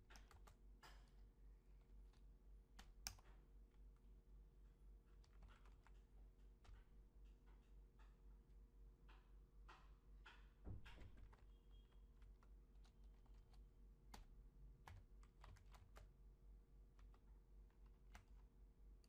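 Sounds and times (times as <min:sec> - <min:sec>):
typing on computer keyboard: 0:00.1 - 0:01.1, 0:05.2 - 0:06.9, 0:10.8 - 0:16.2, 0:17.0 - 0:18.5.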